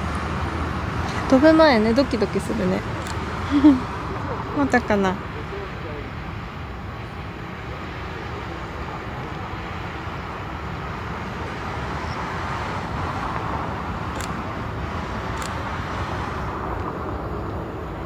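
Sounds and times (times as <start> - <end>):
jet engine rush: 0.0 - 18.0
short sharp clicks: 14.1 - 14.4, 15.3 - 15.6.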